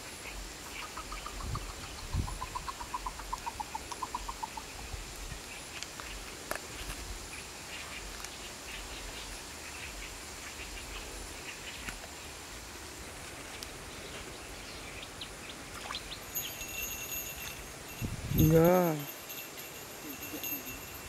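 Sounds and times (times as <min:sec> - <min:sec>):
background hiss: 0:00.0 - 0:21.0
bird chirps: 0:14.6 - 0:18.1.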